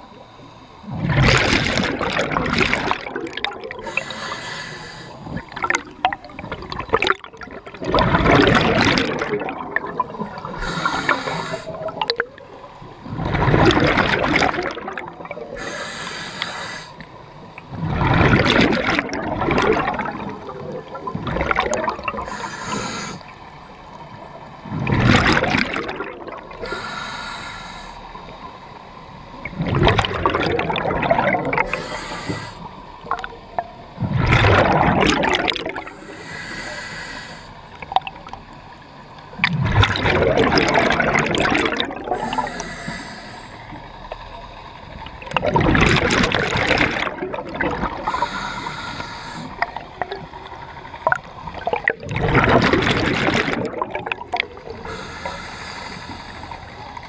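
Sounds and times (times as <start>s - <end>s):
exhaled bubbles rushing: 0.8s - 4.2s, 5.2s - 15.7s, 17.6s - 22.8s, 24.6s - 26.8s, 29.4s - 36.3s, 39.3s - 43.0s, 44.9s - 55.3s
regulator hissing inhale: 3.7s - 5.5s, 10.3s - 11.9s, 15.5s - 17.2s, 22.2s - 23.4s, 26.6s - 28.5s, 31.6s - 32.9s, 35.8s - 37.8s, 42.1s - 43.9s, 48.0s - 49.8s, 54.7s - 57.0s.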